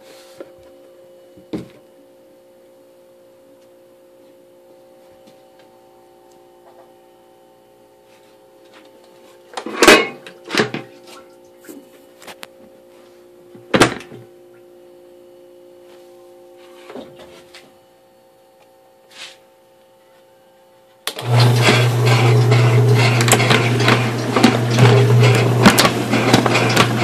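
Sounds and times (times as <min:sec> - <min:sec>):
washing machine humming and clattering: 0:21.1 - 0:27.0.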